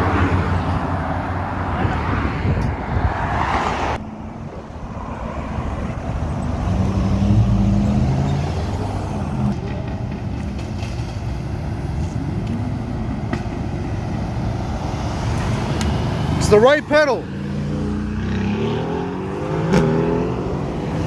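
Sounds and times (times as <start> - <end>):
car engines accelerating: 0.0 - 10.7, 11.4 - 21.0
road traffic: 0.0 - 21.0
engine revving up: 6.4 - 9.5, 17.4 - 21.0.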